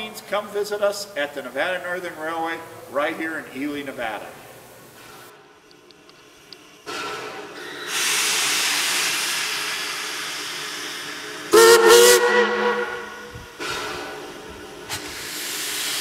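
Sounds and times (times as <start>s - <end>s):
steam locomotive hissing steam: 6.9s - 16.0s
steam whistle blowing: 11.5s - 13.9s.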